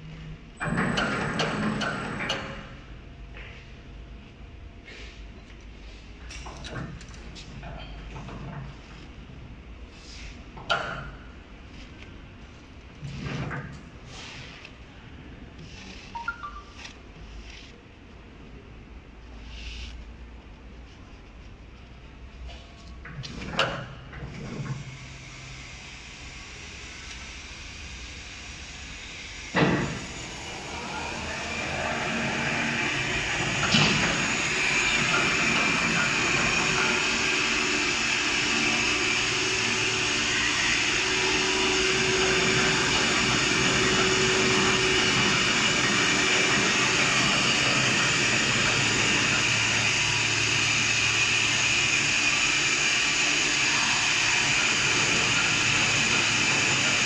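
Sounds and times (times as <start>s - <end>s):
machine running with whine: 24.9s - 57.0s.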